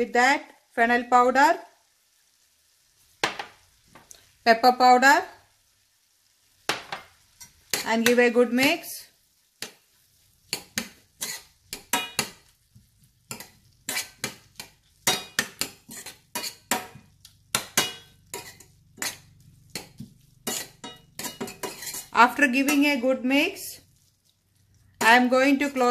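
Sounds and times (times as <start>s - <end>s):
metal spoon scraping a frying pan: 7.3s - 8.2s, 10.5s - 12.5s, 13.2s - 23.2s.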